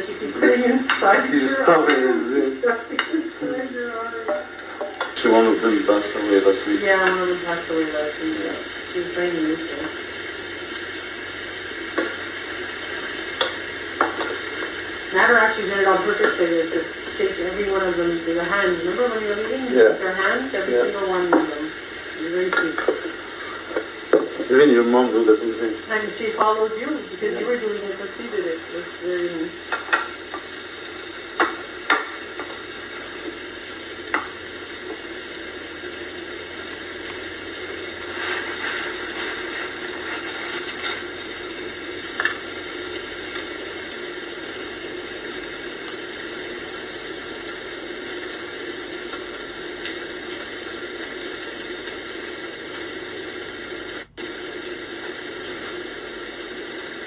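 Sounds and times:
steady hiss: 0:00.0 - 0:57.0
plates clinking: 0:04.2 - 0:05.2.

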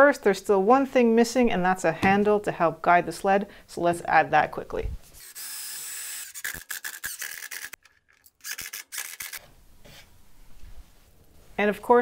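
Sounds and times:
drill motor running: 0:05.2 - 0:07.8
screws clicking and squeaking into wood: 0:05.2 - 0:09.4.

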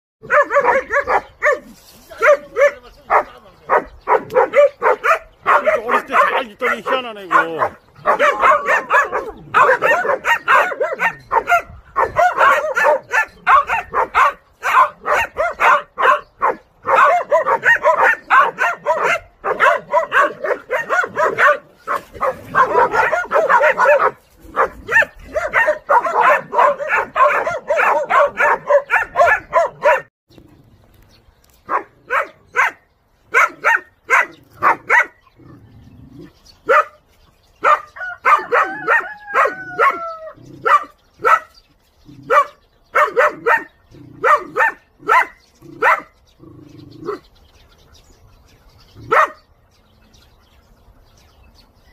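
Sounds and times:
puppy barking high-pitched: 0:00.2 - 0:30.1, 0:31.7 - 0:35.2, 0:37.6 - 0:41.5, 0:42.3 - 0:46.1, 0:49.1 - 0:49.4.

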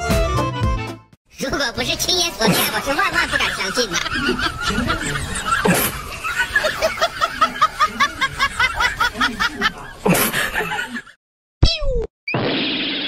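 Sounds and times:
person snickering: 0:04.0 - 0:06.1, 0:06.8 - 0:11.1.

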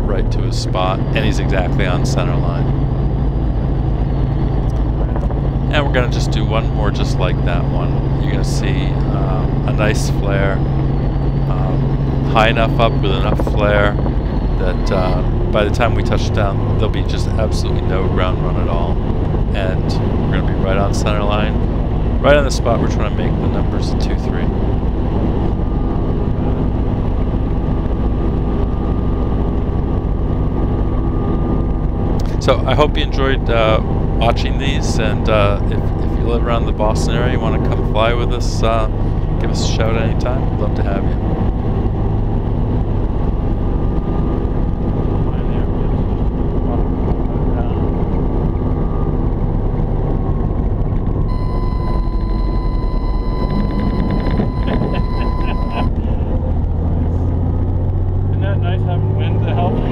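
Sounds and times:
steady high-pitched tone: 0:00.0 - 0:19.0, 0:51.3 - 0:56.4
faint high whine: 0:00.0 - 0:41.3, 0:51.2 - 0:56.5
wind noise: 0:00.0 - 0:58.4
helicopter rotor drone: 0:00.0 - 0:59.9.

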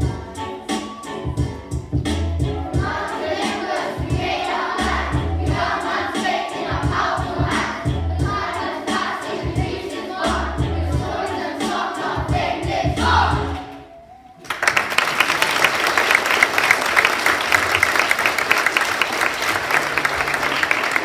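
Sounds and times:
children singing: 0:02.6 - 0:13.7
audience applause: 0:14.4 - 0:21.0.

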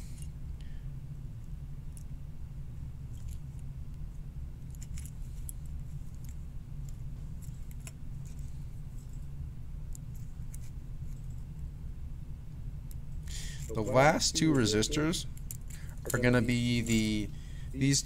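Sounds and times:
steady low hum: 0:00.0 - 0:18.0
wire leads clicking and scraping: 0:04.6 - 0:09.3.

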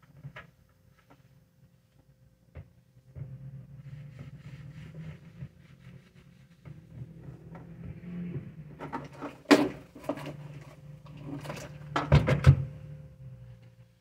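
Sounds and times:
cloth rubbing hair dryer: 0:03.8 - 0:08.3.

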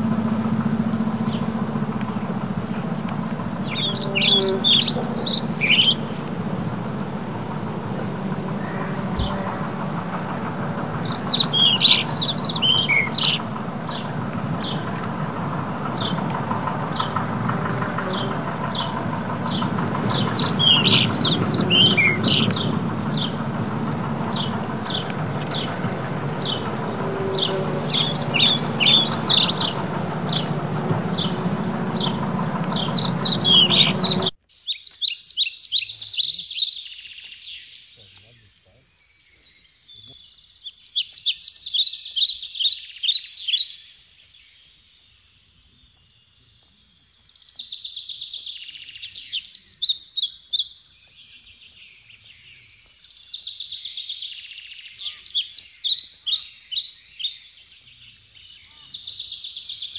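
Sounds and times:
steady low background noise: 0:00.0 - 0:34.3
birds chirping: 0:00.0 - 0:59.9.

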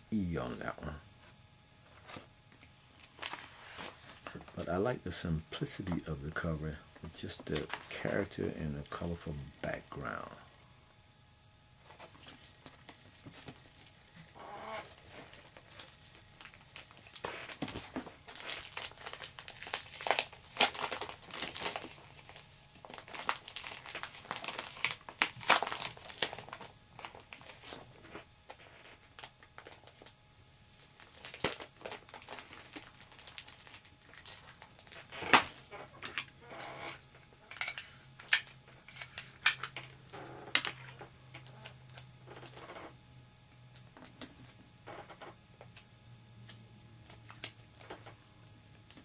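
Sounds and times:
plastic bag crinkling: 0:14.8 - 0:27.9, 0:31.0 - 0:35.6.

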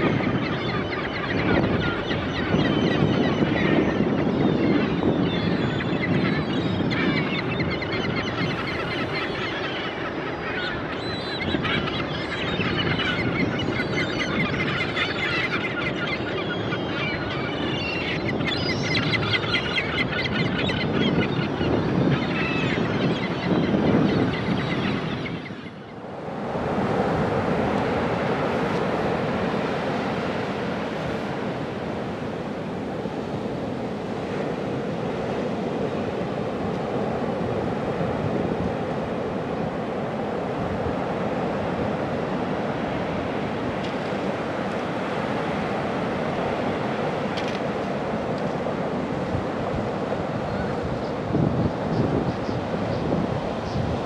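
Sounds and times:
seabirds squawking: 0:00.0 - 0:34.5
wind: 0:00.0 - 0:54.0.

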